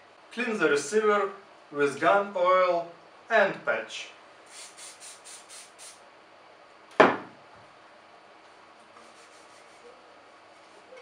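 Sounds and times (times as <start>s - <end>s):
aerosol can spraying short hisses: 4.5s - 6.0s
sharp knock: 7.0s - 7.3s.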